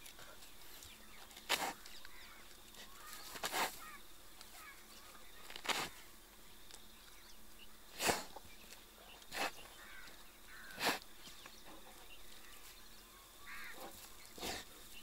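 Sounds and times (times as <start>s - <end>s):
bear breathy puffs: 9.2s - 9.7s, 13.8s - 14.9s.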